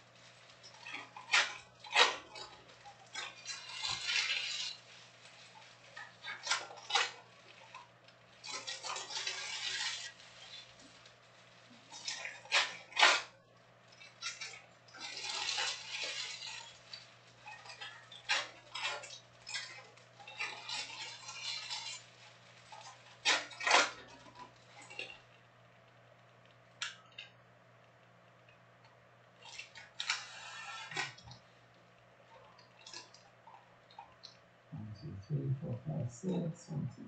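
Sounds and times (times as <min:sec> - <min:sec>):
foil card packs crinkling: 0:00.1 - 0:13.3.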